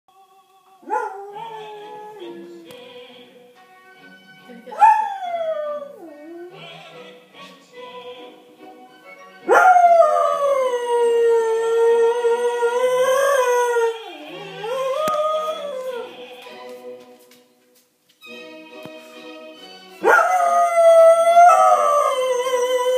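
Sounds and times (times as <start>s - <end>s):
music playing: 0.2s - 22.9s
dog howling: 20.1s - 22.9s.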